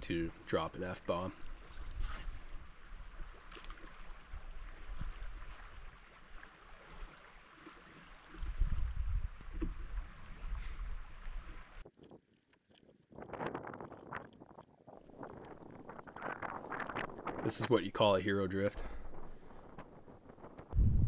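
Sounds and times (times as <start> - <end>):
river water running: 0.0 - 20.8
wind buffeting microphone: 8.3 - 11.9, 13.1 - 21.0.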